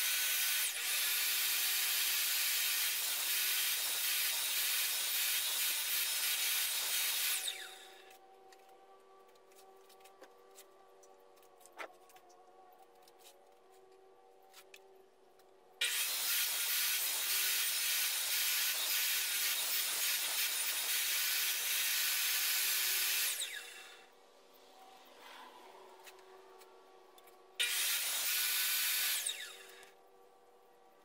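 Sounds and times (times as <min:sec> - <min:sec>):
miter saw cutting wood: 0:00.0 - 0:08.7, 0:15.8 - 0:24.1, 0:27.6 - 0:30.0.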